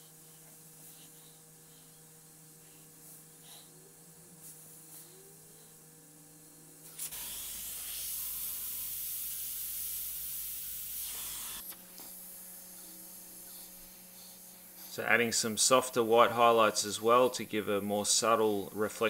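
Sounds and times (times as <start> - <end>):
airbrush spraying hiss: 6.9 - 16.1.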